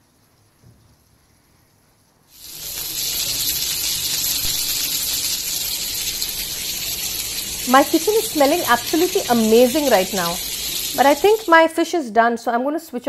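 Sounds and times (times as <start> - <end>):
oil sizzling in a pan: 2.3 - 11.9.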